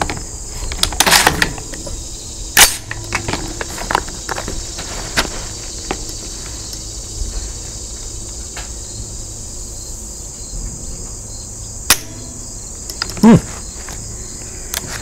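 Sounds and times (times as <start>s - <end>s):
crickets chirping: 0.0s - 15.0s
sharp crack: 2.6s - 4.1s, 11.9s - 13.4s.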